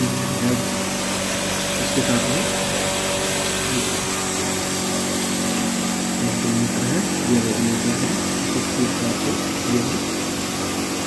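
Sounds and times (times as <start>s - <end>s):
flour mill motor whirring: 0.0s - 11.0s.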